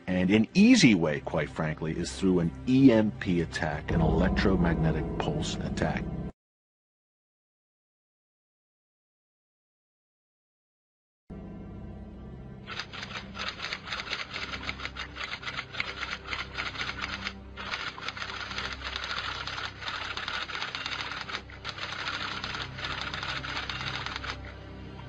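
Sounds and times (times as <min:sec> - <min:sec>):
typewriter keys clattering: 0:12.7 - 0:24.4.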